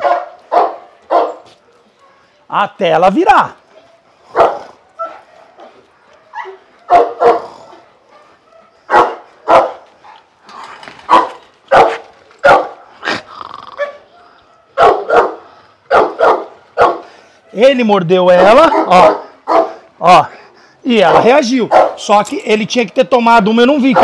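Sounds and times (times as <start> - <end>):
dog barking: 0.0 - 2.4, 4.3 - 10.3, 11.1 - 12.9, 13.8 - 17.7, 18.3 - 19.8, 21.1 - 22.1.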